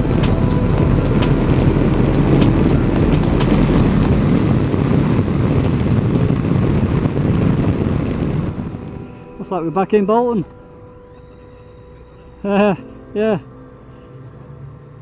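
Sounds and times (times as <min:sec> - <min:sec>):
motorcycle engine running: 0:00.0 - 0:09.0
wind rushing: 0:00.0 - 0:09.4
road noise: 0:00.0 - 0:15.0.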